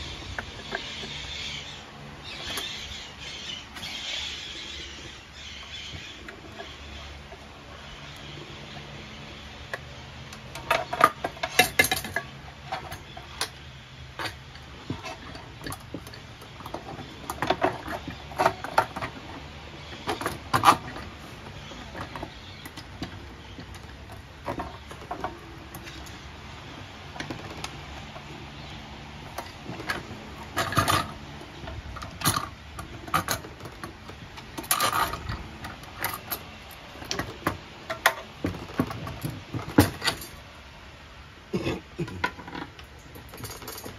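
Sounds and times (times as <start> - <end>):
metal parts clinking: 10.3 - 19.4, 29.2 - 40.4, 42.2 - 43.9.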